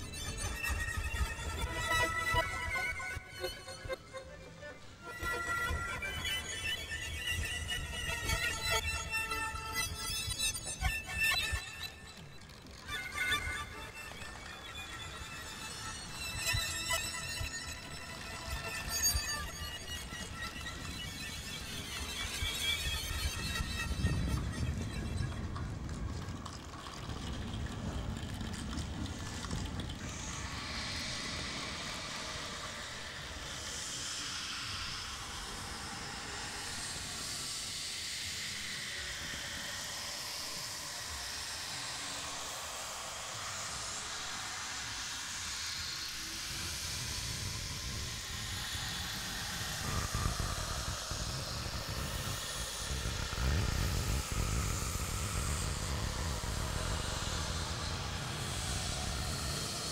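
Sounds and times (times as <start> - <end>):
hissing noise texture: 29.1 - 59.9.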